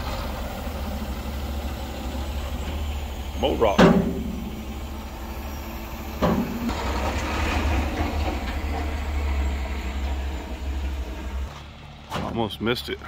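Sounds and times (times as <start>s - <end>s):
diesel truck engine: 0.0s - 13.0s
truck body rattling: 2.5s - 5.0s, 6.0s - 12.6s.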